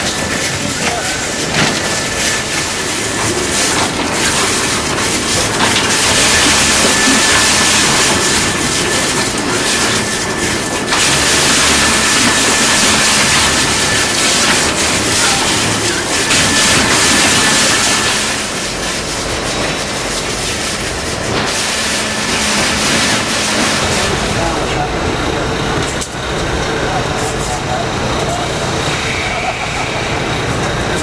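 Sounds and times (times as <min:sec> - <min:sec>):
shredder machinery din: 0:00.0 - 0:31.0
faint high whine: 0:26.7 - 0:31.0.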